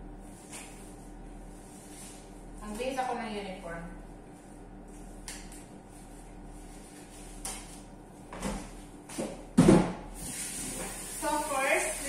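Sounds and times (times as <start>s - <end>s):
knocks at kitchen sink: 9.2s - 10.0s.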